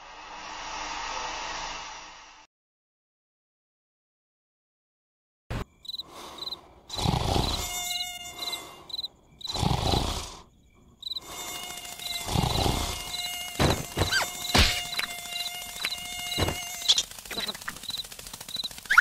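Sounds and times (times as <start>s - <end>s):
crickets chirping: 5.5s - 19.0s
mosquito buzzing whine: 5.5s - 19.0s
cartoon snoring: 6.9s - 7.8s, 9.4s - 10.5s, 12.2s - 13.2s
short sharp squeaks: 13.3s - 15.1s.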